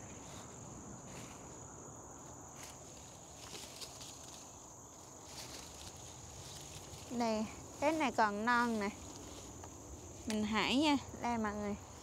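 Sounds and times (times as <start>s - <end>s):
rustling of vines: 0.0s - 10.6s
high insect trill: 0.0s - 12.0s.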